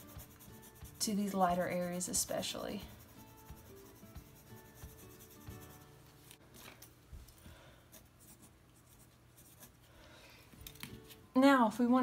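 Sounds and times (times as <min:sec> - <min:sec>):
colored pencil scratching on paper: 0:00.0 - 0:05.9, 0:07.9 - 0:09.8.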